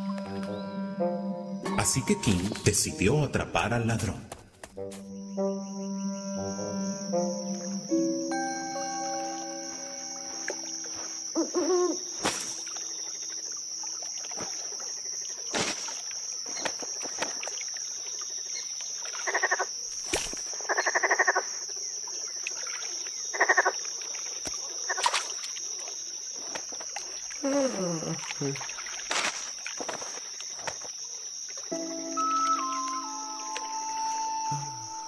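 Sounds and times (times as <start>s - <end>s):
insect chirring: 4.8s - 35.0s
rapid frog croaking: 9.3s - 35.0s.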